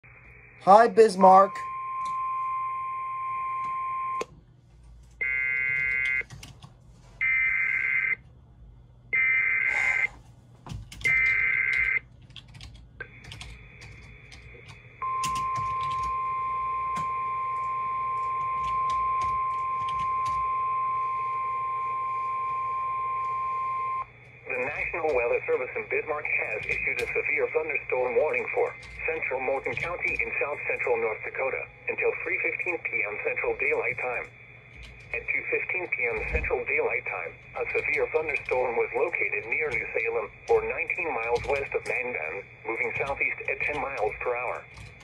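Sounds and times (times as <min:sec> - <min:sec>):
radio hiss: 0:23.6 - 0:34.3, 0:35.1 - 0:44.6.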